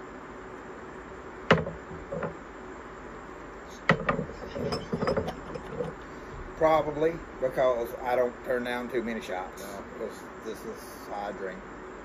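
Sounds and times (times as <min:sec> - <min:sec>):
glassware clinking on table: 0:04.0 - 0:06.0.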